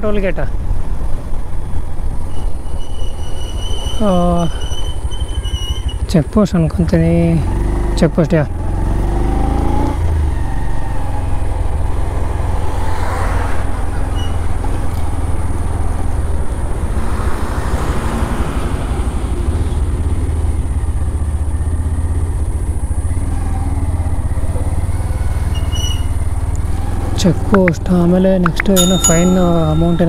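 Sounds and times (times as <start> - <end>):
motorcycle engine rumble: 13.6 - 30.0.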